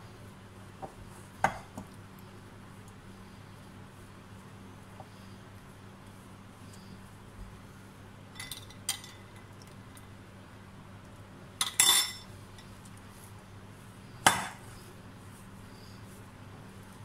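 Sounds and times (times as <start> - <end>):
faint steady hum: 0.0 - 17.0
metal spoon clinking glass bowl: 11.6 - 12.3.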